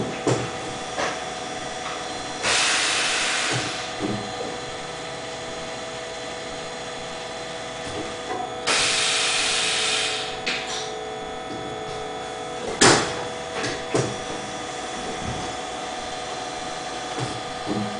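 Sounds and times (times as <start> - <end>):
machine hum: 0.0 - 17.9
hiss: 2.4 - 3.9, 8.7 - 10.3.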